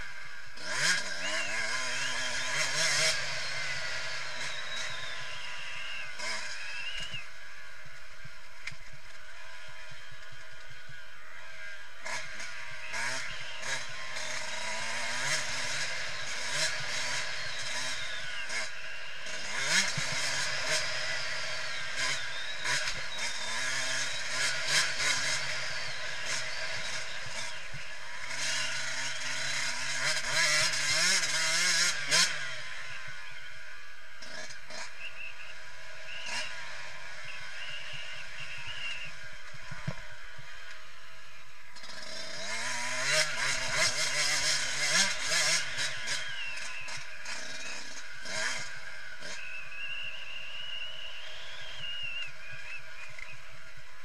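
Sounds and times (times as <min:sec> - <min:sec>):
motorcycle engine revving: 0:00.0 - 0:54.0.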